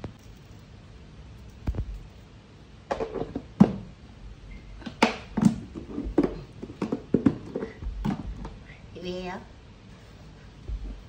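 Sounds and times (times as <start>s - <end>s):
wooden pestle pounding dough: 4.8s - 8.7s.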